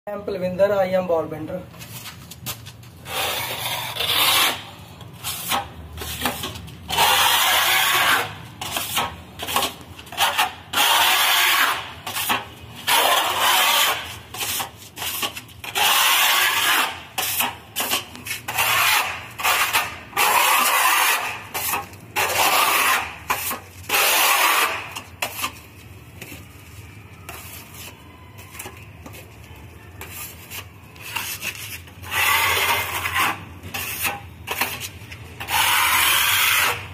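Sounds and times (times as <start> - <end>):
putty knife scraping on wall: 3.0 - 25.6, 30.0 - 36.9.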